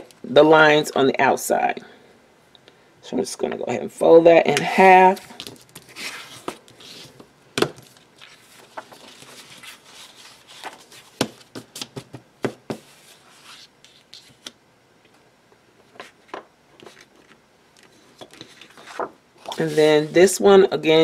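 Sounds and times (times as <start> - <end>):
paper rustling and sliding: 5.4 - 7.2, 7.8 - 12.1, 12.7 - 14.5, 15.9 - 20.3.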